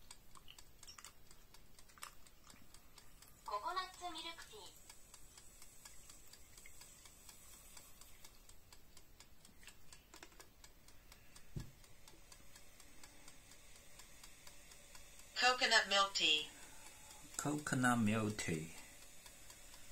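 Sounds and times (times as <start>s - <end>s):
faint rapid clicking: 0.0s - 19.9s
soft low thump: 11.6s - 11.8s.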